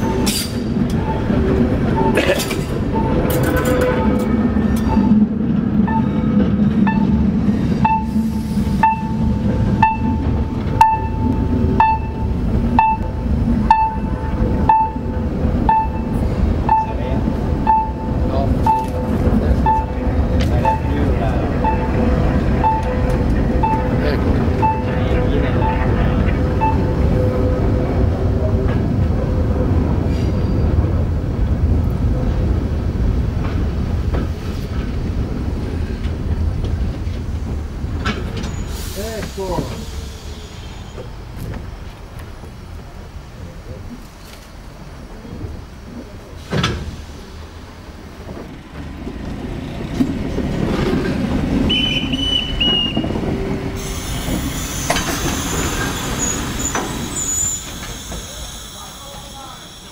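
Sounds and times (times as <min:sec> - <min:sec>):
train wheels rumbling on rail: 0:00.0 - 0:59.9
wheels squealing: 0:48.9 - 0:59.9.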